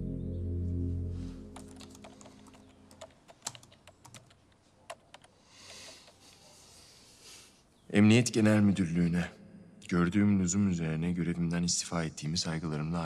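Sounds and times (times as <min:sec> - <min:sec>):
low sustained music: 0:00.0 - 0:02.2
laptop keyboard typing: 0:01.6 - 0:06.2.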